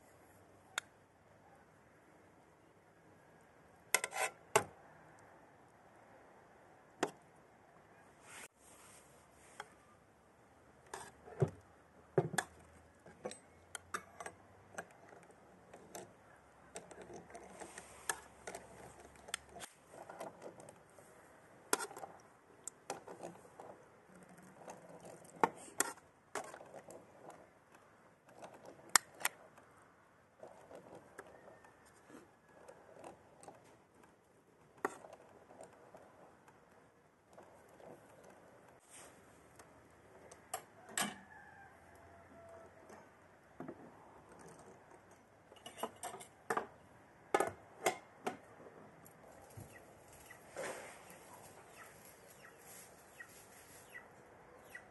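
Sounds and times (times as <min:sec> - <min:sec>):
metal spoon scraping pot and plate: 0:04.0 - 0:04.4.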